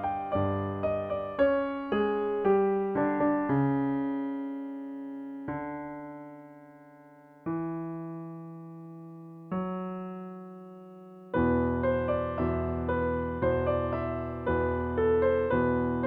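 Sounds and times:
solo piano playing slowly: 0:00.0 - 0:16.0.

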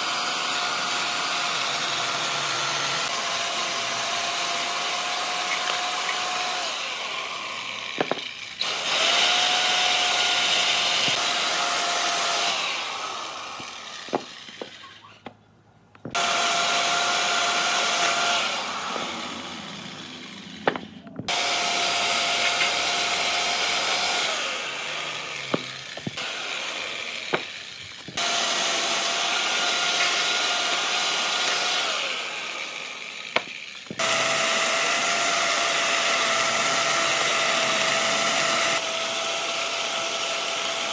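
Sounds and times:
power tool whining on wood: 0:00.0 - 0:15.4, 0:16.0 - 0:40.9
sharp knocks: 0:20.6 - 0:21.3.

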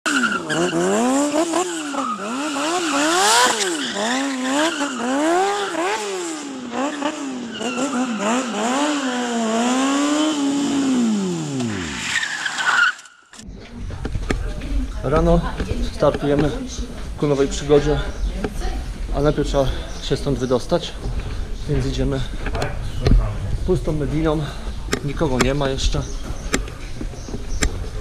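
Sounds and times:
racing engine revving: 0:00.1 - 0:12.2.

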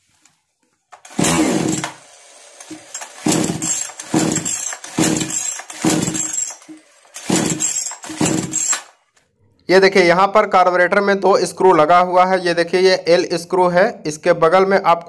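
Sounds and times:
chainsaw engine start attempts: 0:00.9 - 0:09.0.

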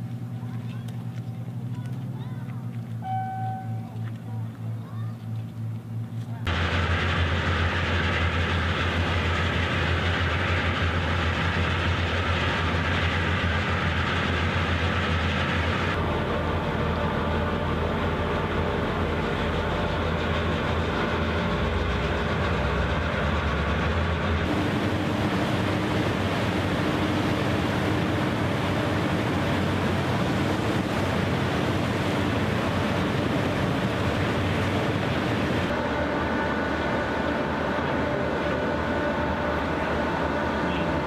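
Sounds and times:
tugboat diesel engines droning: 0:00.0 - 0:41.0
propeller wash churning water: 0:24.4 - 0:41.0.

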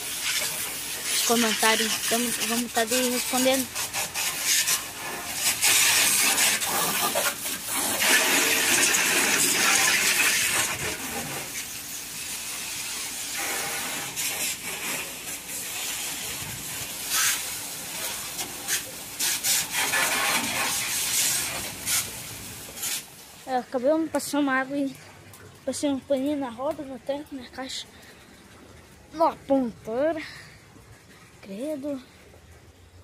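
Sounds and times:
hose spray nozzle hissing: 0:00.0 - 0:23.1.

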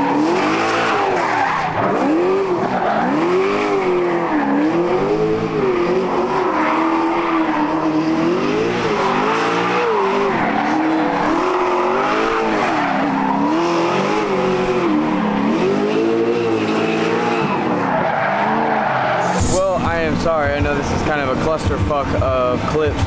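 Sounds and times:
car engine revving: 0:00.0 - 0:22.9
tyre squeal: 0:18.0 - 0:19.8.

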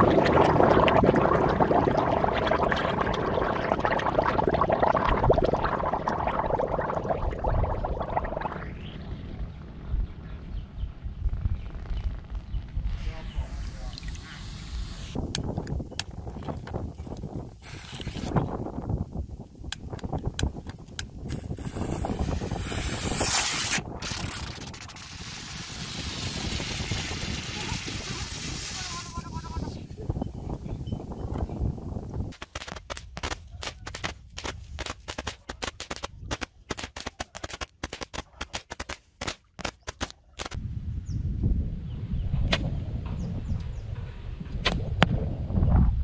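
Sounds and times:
wind rumbling on microphone: 0:00.0 - 0:36.7, 0:40.4 - 0:46.0
firework hissing and fizzing: 0:21.2 - 0:30.0
firecrackers crackling: 0:21.4 - 0:29.7, 0:32.3 - 0:40.6
sharp clicks: 0:32.3 - 0:40.6.

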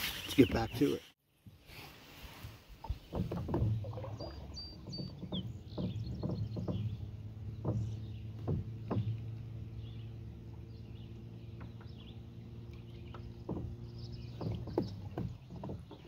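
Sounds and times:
knocks against kayak: 0:03.0 - 0:04.1, 0:05.0 - 0:09.6, 0:13.1 - 0:16.0.

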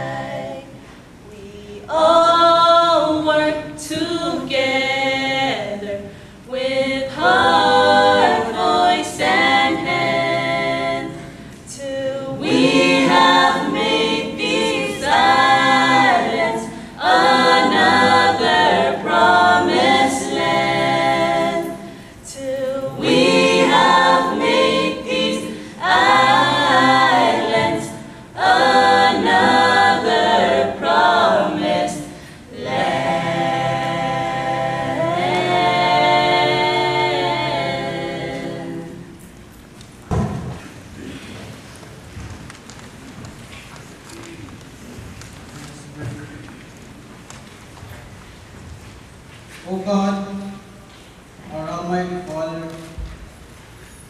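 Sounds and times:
group singing unaccompanied: 0:00.0 - 0:39.3.

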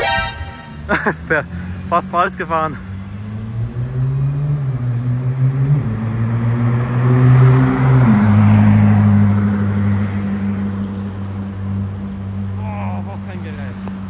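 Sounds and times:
sports car accelerating past: 0:02.9 - 0:12.4.

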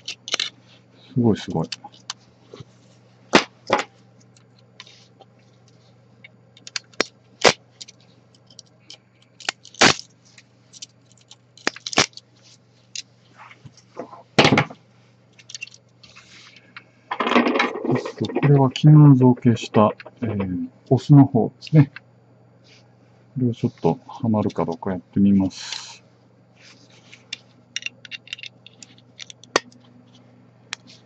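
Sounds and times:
plastic snapping and crackling: 0:00.0 - 0:00.5, 0:06.6 - 0:08.7, 0:09.3 - 0:10.1, 0:10.7 - 0:12.2
faint steady hum: 0:00.0 - 0:31.0
pliers clicking and scraping: 0:27.1 - 0:29.8.

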